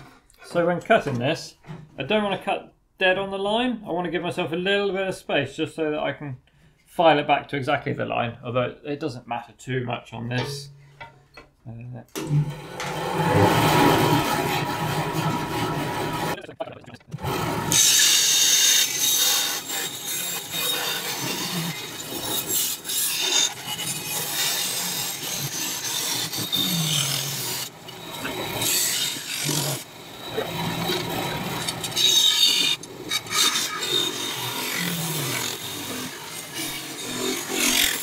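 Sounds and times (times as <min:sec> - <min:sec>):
bandsaw rasping through metal: 0:12.2 - 0:16.4, 0:17.2 - 0:38.0.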